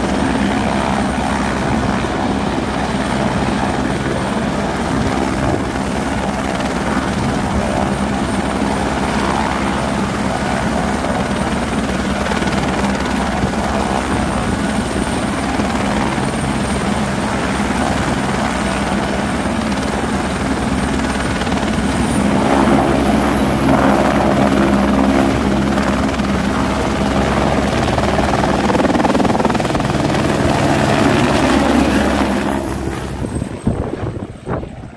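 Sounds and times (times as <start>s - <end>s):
helicopter rotor beat: 0.0s - 34.9s
high turbine whine: 10.8s - 34.9s.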